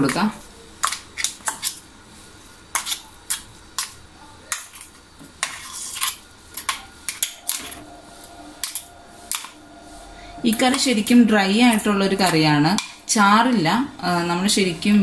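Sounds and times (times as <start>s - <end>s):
metal spoon scraping a steel bowl: 5.4s - 8.0s.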